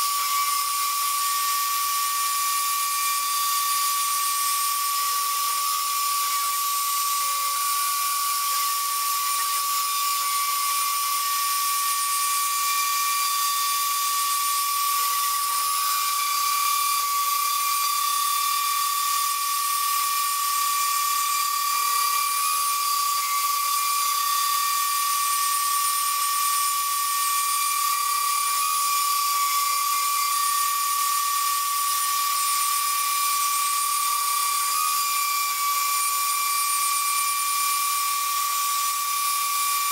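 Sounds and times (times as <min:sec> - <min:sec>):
router spindle whining: 0:00.0 - 0:39.9.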